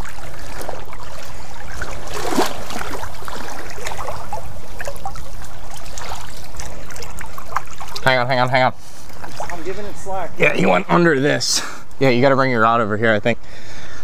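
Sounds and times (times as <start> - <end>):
water splash: 0.0 - 10.4
water sloshing around legs: 0.0 - 10.6.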